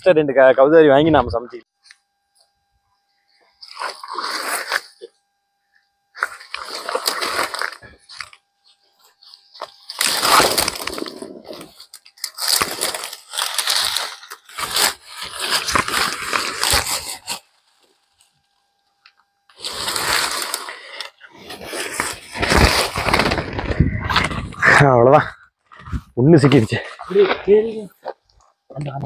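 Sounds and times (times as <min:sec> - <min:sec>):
rustling and crackling: 0:06.2 - 0:18.3, 0:19.6 - 0:24.9.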